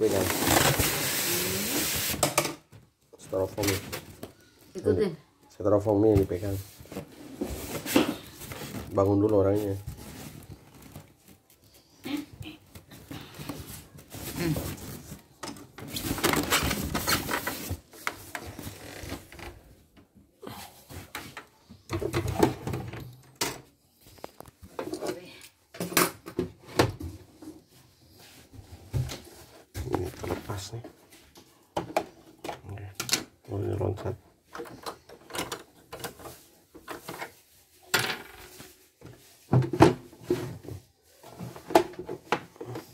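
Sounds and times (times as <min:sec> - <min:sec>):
styrofoam and cardboard scraping: 0:00.0 - 0:02.2.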